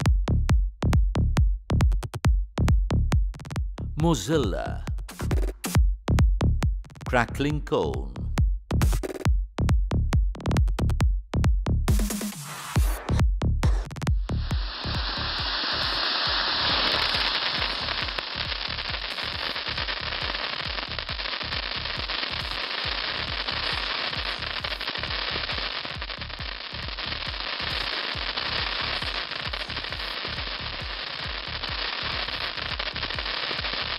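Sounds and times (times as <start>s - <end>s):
music with thumping beat: 0.0s - 4.1s, 4.8s - 33.9s
firework spark hiss and crackling: 14.2s - 33.9s.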